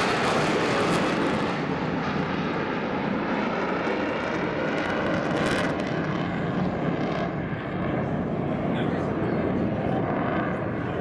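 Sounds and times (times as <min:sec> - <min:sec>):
jet engine afterburner roar: 0:00.0 - 0:11.0.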